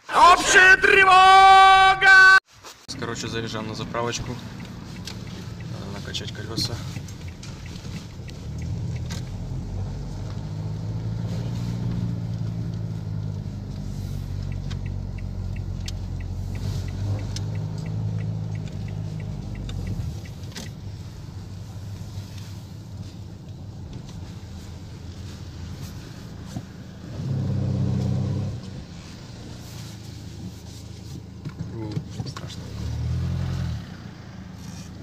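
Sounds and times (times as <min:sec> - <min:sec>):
car engine and tyres rumbling: 0:00.0 - 0:35.0
light ticks: 0:04.1 - 0:11.1, 0:11.9 - 0:24.8.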